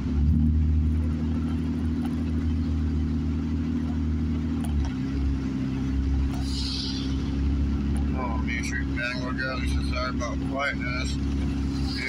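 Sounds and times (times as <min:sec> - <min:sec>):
car engine hum: 0:00.0 - 0:12.0
tyre noise on wet road: 0:00.0 - 0:12.0
brief hiss: 0:06.4 - 0:07.3.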